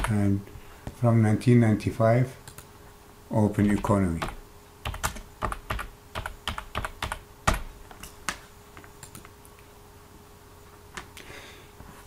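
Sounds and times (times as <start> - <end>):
computer keyboard typing: 0.0 - 0.2, 3.6 - 7.7.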